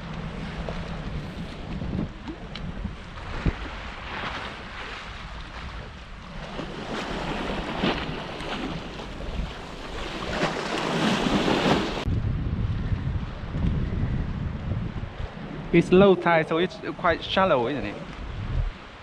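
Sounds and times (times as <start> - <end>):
waves splashing against a wall: 0.0 - 12.1
wind buffeting microphone: 0.0 - 19.0.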